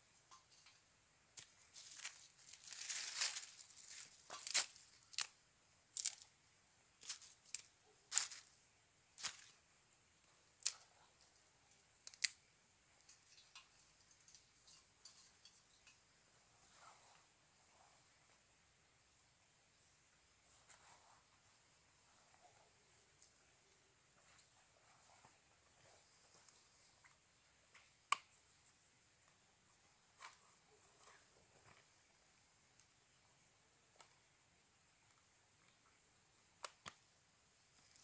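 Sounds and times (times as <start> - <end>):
dry twigs snapping: 1.8 - 6.3, 7.0 - 8.5, 10.6 - 10.8, 12.0 - 12.4.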